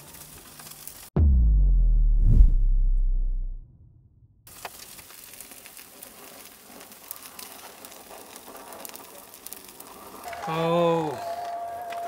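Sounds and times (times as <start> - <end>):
fat sizzling and crackling: 0.0 - 1.2, 4.5 - 12.0.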